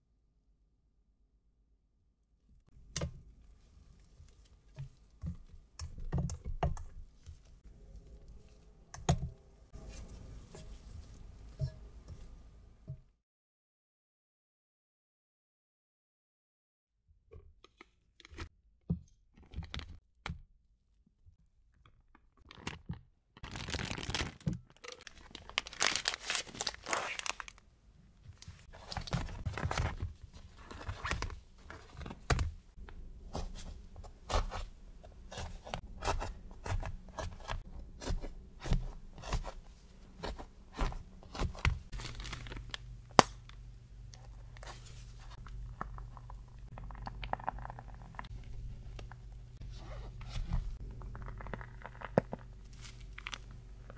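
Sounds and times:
noisy crinkling: 21.8s - 27.6s, 28.2s - 33.7s, 39.2s - 53.9s
pastry shells crunching: 45.4s - 49.2s, 50.8s - 53.9s.

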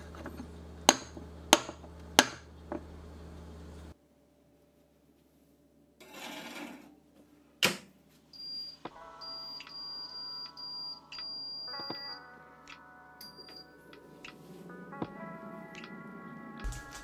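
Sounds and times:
pan scraping on wire rack: 6.0s - 7.0s
touch panel beeps: 8.4s - 12.2s.

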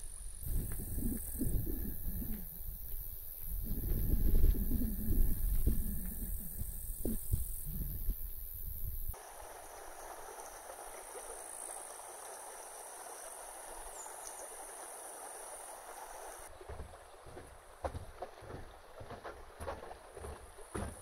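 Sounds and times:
stream flowing over stones: 9.1s - 20.8s.

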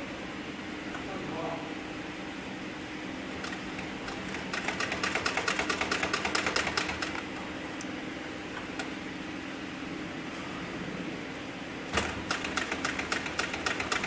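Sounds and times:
motor hum: 0.0s - 14.0s
sewing machine stitching: 3.4s - 7.2s, 12.0s - 14.0s.

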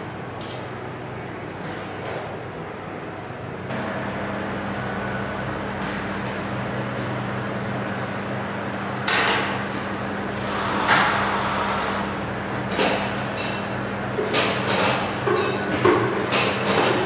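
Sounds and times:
machine humming: 3.2s - 15.3s.

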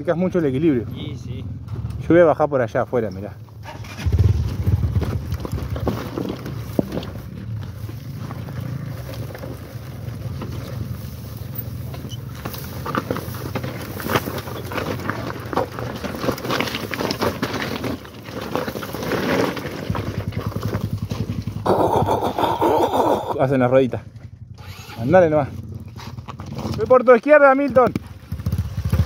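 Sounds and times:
tyres crunching over stones: 4.2s - 23.4s, 25.6s - 29.0s
motorcycle engine idling: 19.9s - 22.3s, 23.3s - 26.5s, 27.8s - 29.0s.

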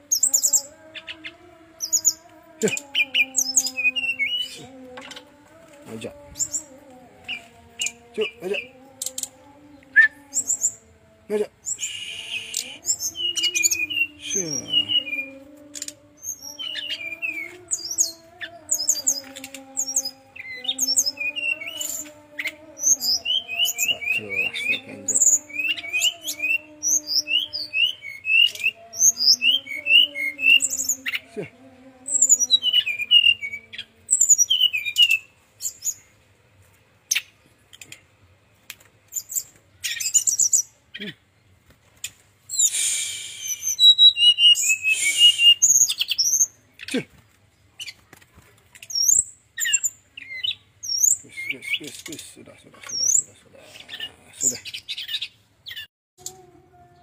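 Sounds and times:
bird singing high chirps: 0.0s - 5.3s, 6.0s - 10.8s, 11.6s - 31.2s, 32.1s - 36.1s, 39.1s - 41.1s, 42.5s - 47.0s, 48.9s - 52.1s.

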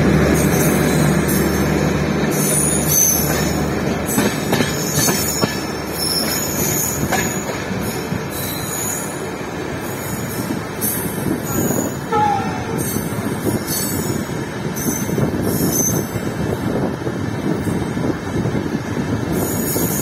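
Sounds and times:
wheels clacking over rail joints: 0.0s - 8.8s
train wheels rumbling on rails: 0.0s - 20.0s
high-pitched wheel squeals: 4.8s - 9.2s.

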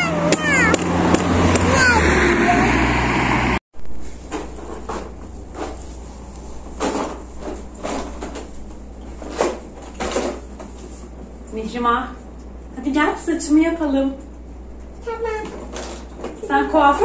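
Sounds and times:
loud outdoor noise: 0.0s - 10.4s
low steady hum: 3.8s - 17.0s.

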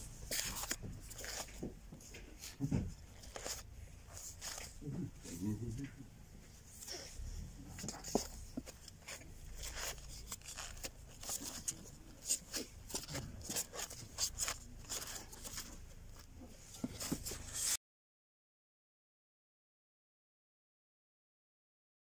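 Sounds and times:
record sleeves rustling: 0.0s - 5.4s, 6.3s - 17.8s.

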